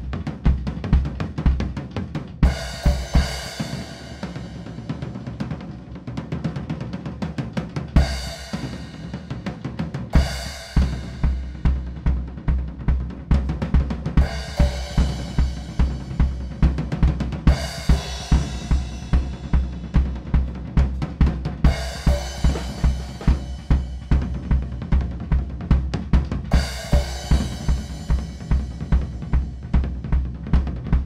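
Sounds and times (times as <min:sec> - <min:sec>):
bass drum beat: 0:00.0 - 0:04.3, 0:10.0 - 0:31.0
snare and tom strokes: 0:07.6 - 0:31.0.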